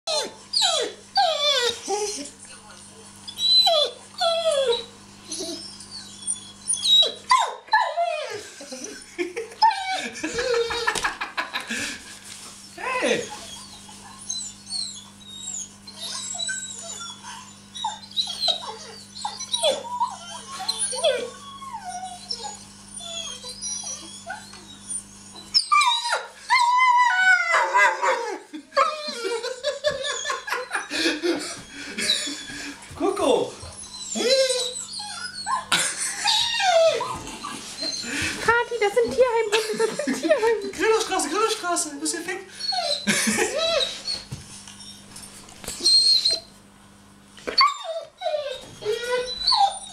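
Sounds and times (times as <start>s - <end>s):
dog whining and yipping: 0.1s - 2.2s, 3.3s - 8.4s, 9.6s - 11.0s, 13.0s - 28.2s, 28.8s - 30.8s, 31.6s - 32.6s, 33.6s - 38.2s, 42.6s - 46.5s, 47.5s - 49.9s.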